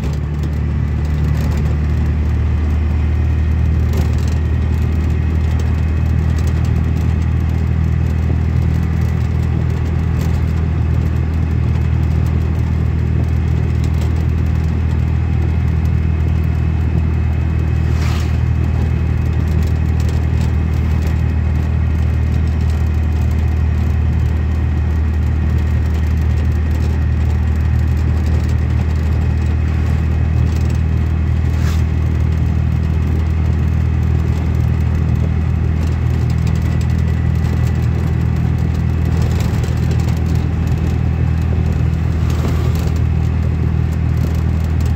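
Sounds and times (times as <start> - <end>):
vehicle engine and road noise: 0.0 - 44.9
brief sharp sounds: 17.8 - 18.5.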